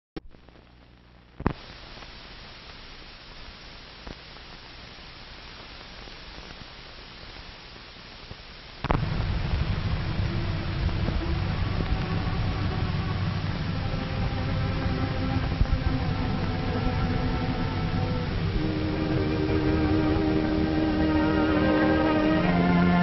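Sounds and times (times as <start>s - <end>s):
film soundtrack surface hiss: 0.2s - 23.0s
low hum with steady tones: 0.2s - 23.0s
sharp clicks and pops: 1.4s - 2.8s, 3.4s - 4.7s, 5.4s - 11.2s.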